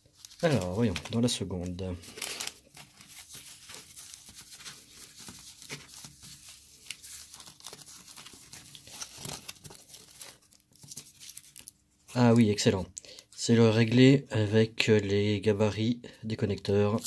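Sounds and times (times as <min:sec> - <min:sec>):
foam packing sleeve crinkling: 0:00.0 - 0:11.8.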